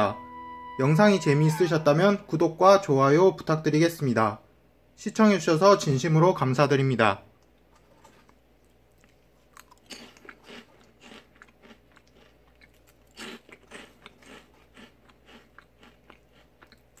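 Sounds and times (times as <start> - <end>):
potato snack sticks crunching: 8.0 - 17.0.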